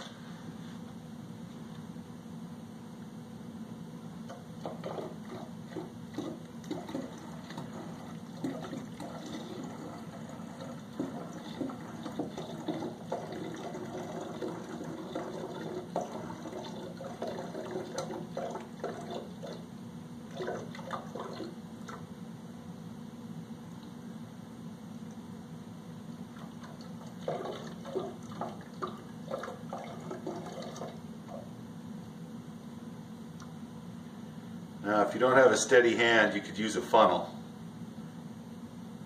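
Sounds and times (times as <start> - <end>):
water pouring into glass jug: 4.6 - 19.6, 20.3 - 21.5, 26.4 - 31.0.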